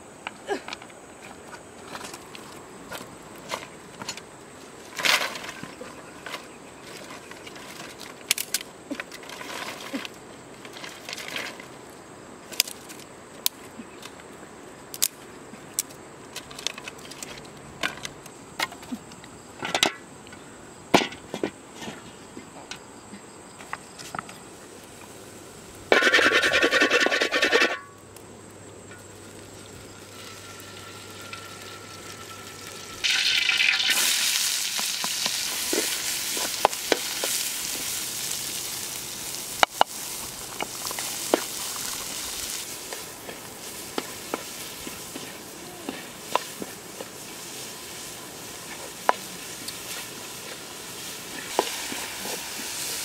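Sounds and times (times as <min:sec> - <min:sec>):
wood fire crackling: 0:00.3 - 0:19.2, 0:24.2 - 0:53.0
sticks snapping and clattering: 0:07.6 - 0:11.6, 0:14.9 - 0:18.9
food sizzling in a wok: 0:29.1 - 0:53.0.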